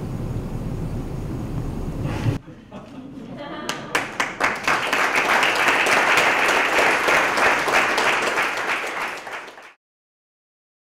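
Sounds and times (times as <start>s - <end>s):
audience applauding: 3.6s - 9.8s.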